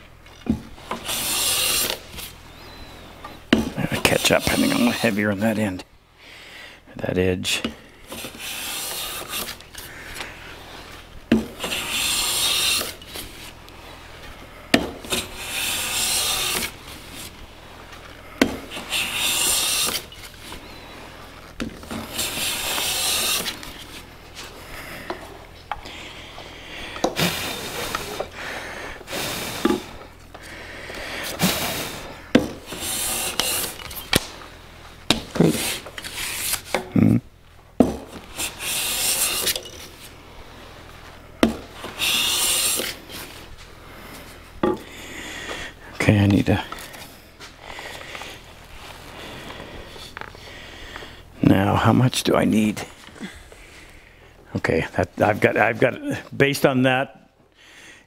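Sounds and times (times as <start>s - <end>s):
plane shaving wood hiss: 0.8s - 5.6s, 8.1s - 34.6s, 35.3s - 36.9s, 38.1s - 51.2s.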